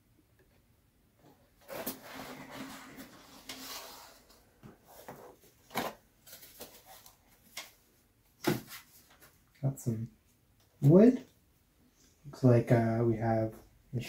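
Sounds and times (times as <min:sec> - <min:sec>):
cardboard lid scraping off box: 0:01.6 - 0:04.4.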